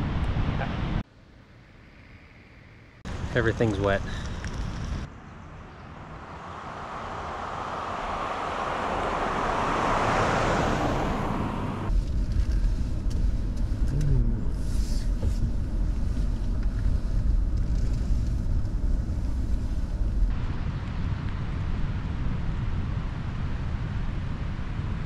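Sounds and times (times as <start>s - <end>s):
truck rumble from inside cab: 10.9s - 20.3s.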